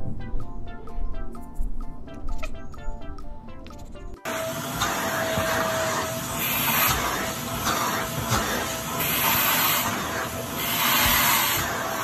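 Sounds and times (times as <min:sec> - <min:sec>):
vacuum cleaner running: 0:04.3 - 0:12.0.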